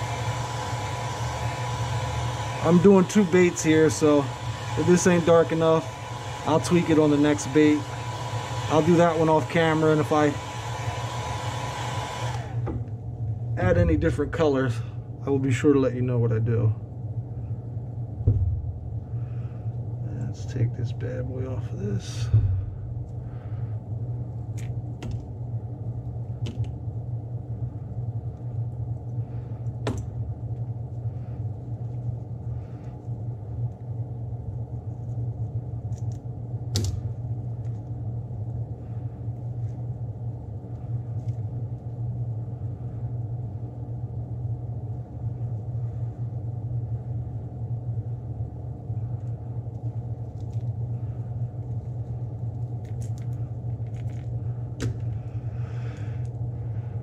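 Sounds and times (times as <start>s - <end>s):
fan humming: 0.0s - 57.0s
sharp clicks and crinkles: 51.6s - 55.3s.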